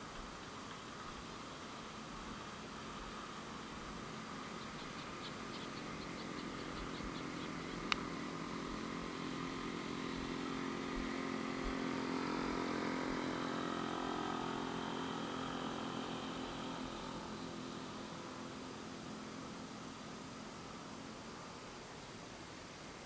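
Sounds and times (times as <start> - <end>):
vehicle engine passing by: 3.2 - 20.8.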